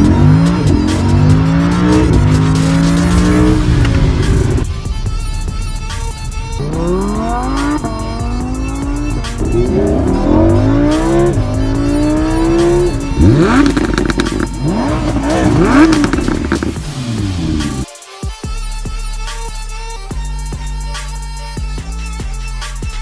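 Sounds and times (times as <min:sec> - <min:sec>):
sports car engine accelerating hard: 0:00.0 - 0:04.7, 0:06.1 - 0:17.9.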